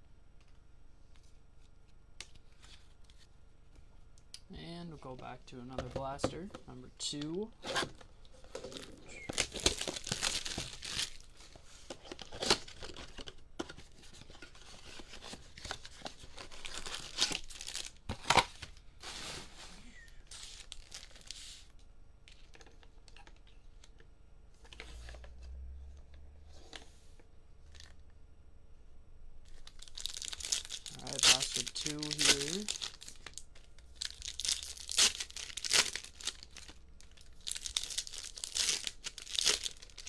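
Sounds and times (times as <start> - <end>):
foil card packs rustling: 8.4 - 21.4, 29.5 - 40.0.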